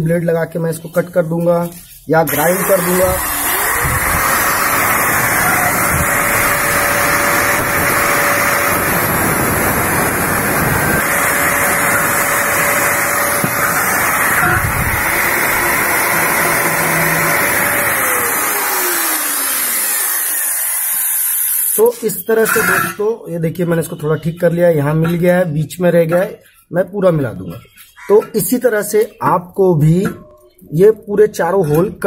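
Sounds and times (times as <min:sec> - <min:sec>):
angle grinder grinding steel: 0:01.6 - 0:23.1.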